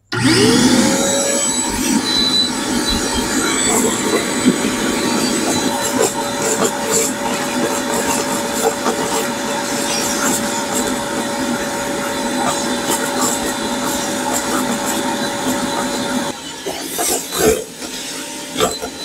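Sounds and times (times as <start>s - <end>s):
shop vacuum motor whine: 0.0s - 19.0s
debris rattling in hose: 1.6s - 16.3s.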